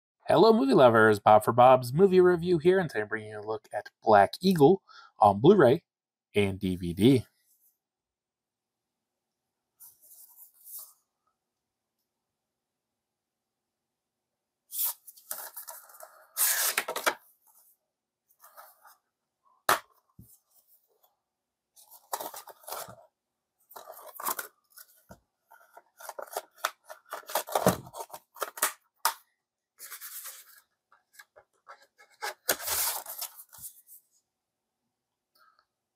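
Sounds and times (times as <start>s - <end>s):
card and plastic rustling: 14.9s - 17.2s, 21.8s - 23.1s, 23.7s - 29.2s, 29.8s - 33.9s.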